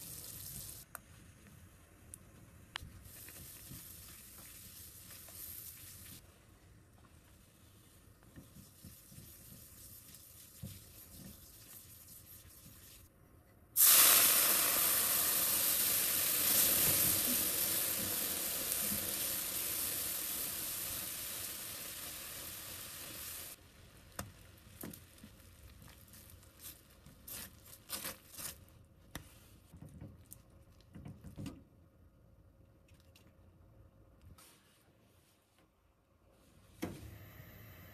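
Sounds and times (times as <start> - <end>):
sauce sizzling in frying pan: 13.8 - 23.6.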